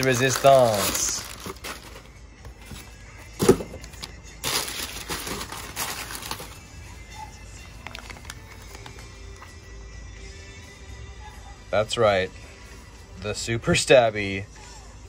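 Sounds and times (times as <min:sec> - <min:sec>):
packing paper crackling: 0:00.0 - 0:02.8, 0:03.8 - 0:06.6, 0:07.7 - 0:09.1.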